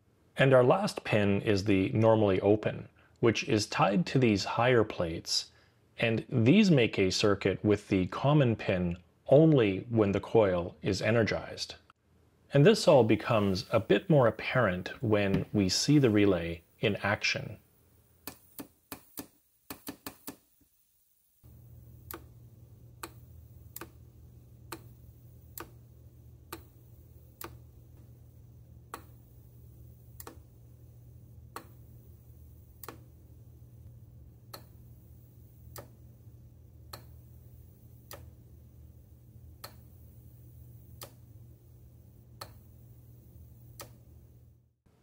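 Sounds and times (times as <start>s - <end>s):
steady low hum: 0.0s - 45.0s
relay clicking: 42.3s - 44.1s.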